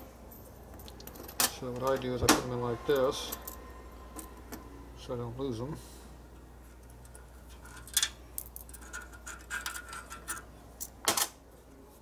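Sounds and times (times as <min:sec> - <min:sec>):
small metal clicks and scraping: 0:06.8 - 0:11.0.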